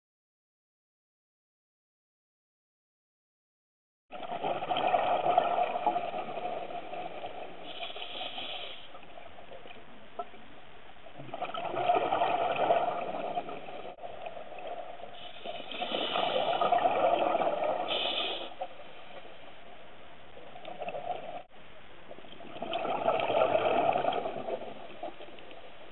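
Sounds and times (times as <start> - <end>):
high inhale hisses: 7.6 - 9.0, 15.2 - 16.8, 17.9 - 19.3
regulator hiss: 7.6 - 9.0, 15.1 - 16.8, 17.8 - 19.4
diver exhaling bubbles: 11.2 - 14.0, 15.2 - 18.7, 22.4 - 25.2.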